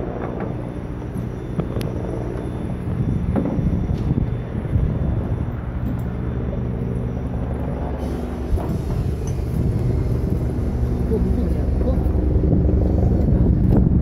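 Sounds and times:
low mechanical hum: 0.0 - 14.0
rumbling background: 0.0 - 14.0.

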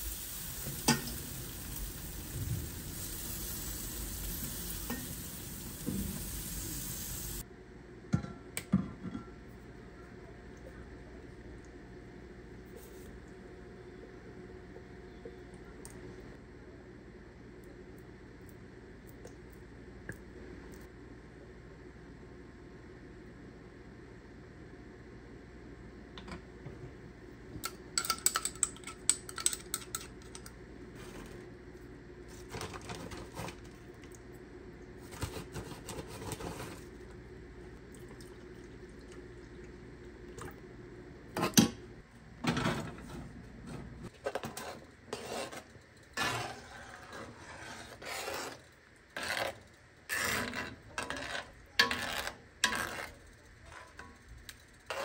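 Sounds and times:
low steady hum: 0.0 - 55.0
utensils clinking against pots: 0.7 - 1.3, 27.6 - 30.5.

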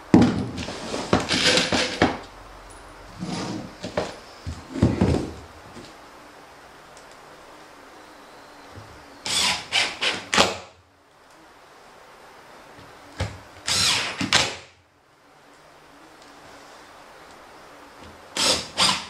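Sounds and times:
cordless drill driving screws: 9.2 - 10.6, 13.6 - 14.6, 18.4 - 19.0.

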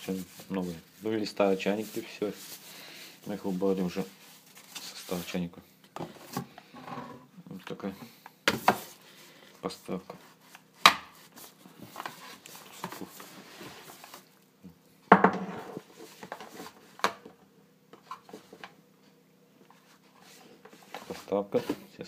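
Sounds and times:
cardboard and plastic rustling: 0.0 - 6.6, 8.6 - 14.4, 15.8 - 17.3, 19.7 - 22.0.

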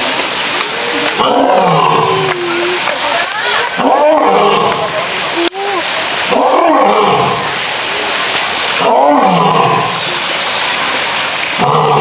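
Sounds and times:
steady hiss: 0.0 - 8.9
lion roaring: 1.1 - 2.8.

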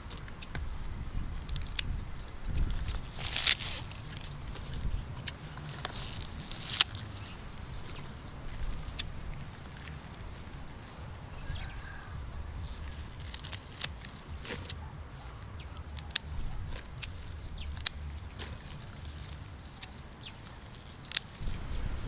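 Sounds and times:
low steady rumble: 0.0 - 22.0
scissors snipping onion stalks: 1.4 - 7.2, 8.6 - 10.0, 12.6 - 14.9, 15.5 - 21.7.

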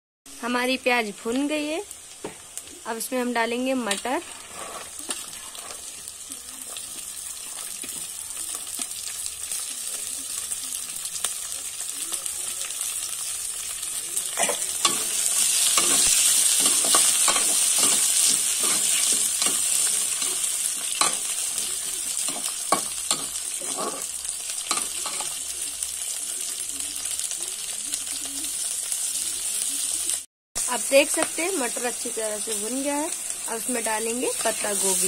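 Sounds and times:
vegetables sizzling in oil: 0.3 - 35.0
metal spoon scraping pan: 14.5 - 25.4.

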